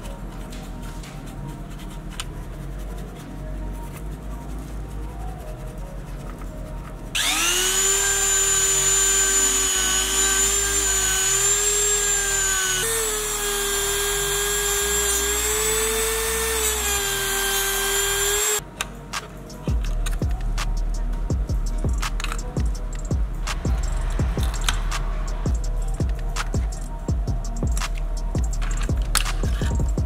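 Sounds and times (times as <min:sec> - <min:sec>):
rotary tool cutting plastic whine: 0:07.2 - 0:18.6.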